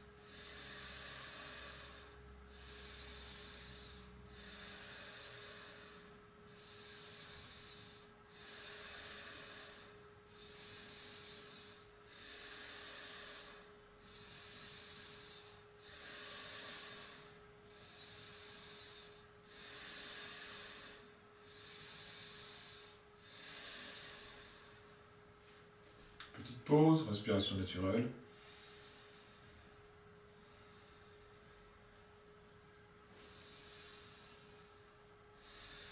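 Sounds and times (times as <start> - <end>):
man breathing deeply: 0.0 - 26.2, 28.2 - 35.9
faint steady hum: 0.0 - 35.9.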